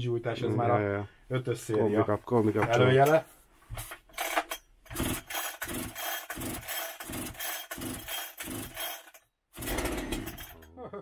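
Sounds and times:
chainsaw starter rope pulls: 4.2 - 10.7
chainsaw engine turning over: 4.9 - 10.7.

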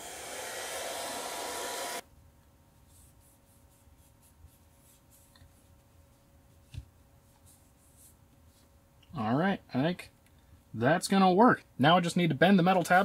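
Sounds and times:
heat gun blowing: 0.0 - 2.0.

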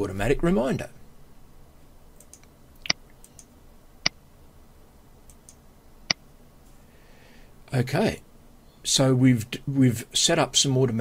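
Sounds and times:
computer mouse clicking: 2.2 - 3.5, 5.3 - 6.2.

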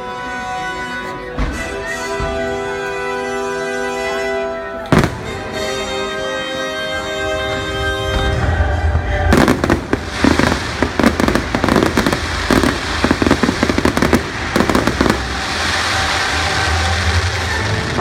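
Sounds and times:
fireworks bangs and crackling: 4.8 - 6.1, 7.6 - 18.0.

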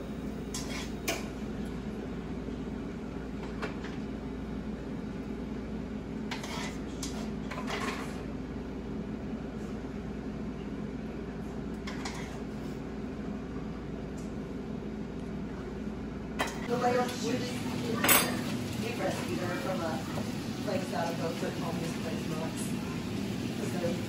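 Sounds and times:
steady low hum: 0.0 - 24.0
metal tongs clinking on a skillet: 17.9 - 18.6.

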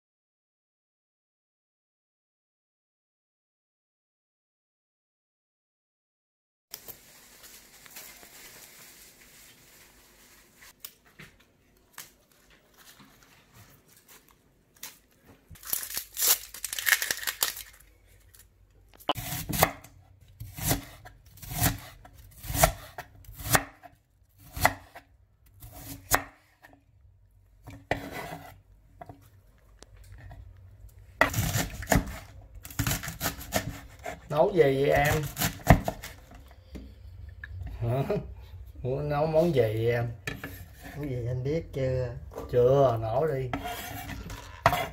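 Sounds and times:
plastic bag crinkling: 6.8 - 11.1, 11.9 - 18.5
cleaver slicing onion on board: 19.1 - 26.8, 27.6 - 28.6, 31.2 - 36.2, 43.5 - 44.9.

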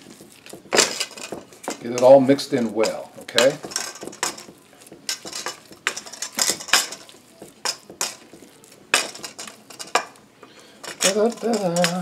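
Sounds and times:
hands mixing meat squelching: 0.0 - 12.0
metal bowl clattering: 0.0 - 12.0.

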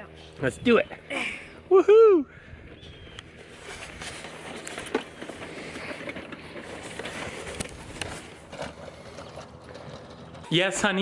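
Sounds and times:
wagon wheels rolling on grass: 3.3 - 11.0
wagon rattling: 3.8 - 11.0.

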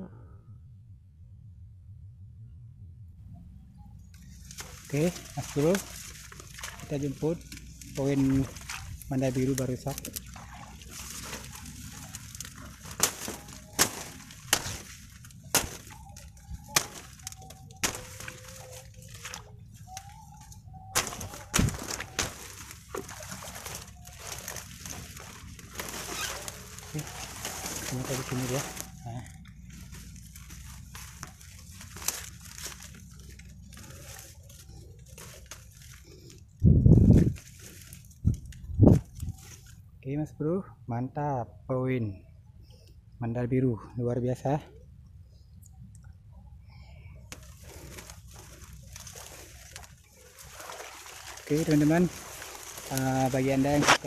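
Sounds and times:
dry reeds rustling: 3.7 - 40.0, 46.4 - 54.0
reeds snapping underfoot: 4.1 - 39.8, 47.3 - 54.0.

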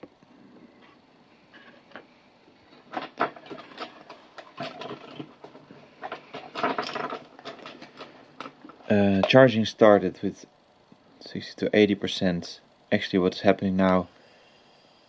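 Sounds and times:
handling clicks and rustles: 2.7 - 9.4.

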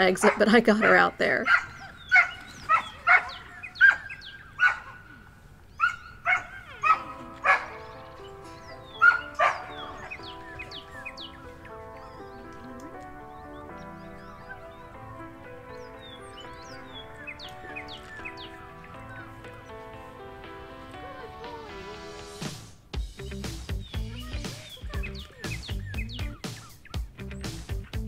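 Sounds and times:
dog barking: 0.2 - 5.2, 5.8 - 7.8, 9.0 - 10.3
background music: 5.9 - 28.0.

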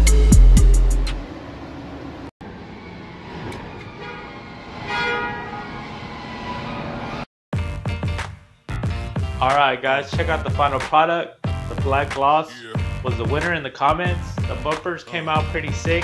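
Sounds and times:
background music: 0.0 - 1.2, 7.6 - 16.0
horn-like tone: 3.8 - 7.2.

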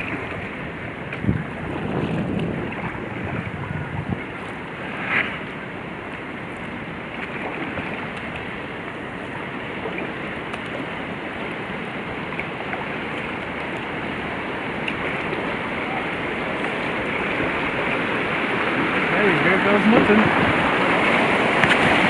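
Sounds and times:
water rushing through sluice: 0.0 - 22.0.

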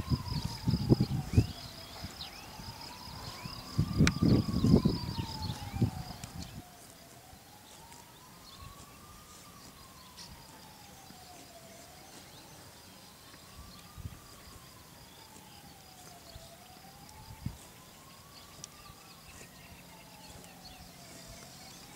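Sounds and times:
distant siren wailing: 0.0 - 21.9.

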